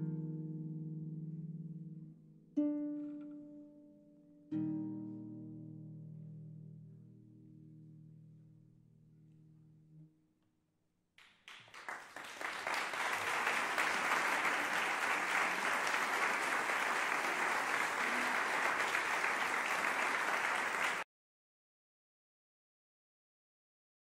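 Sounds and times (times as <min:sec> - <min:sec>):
audience applauding: 0:11.2 - 0:21.0.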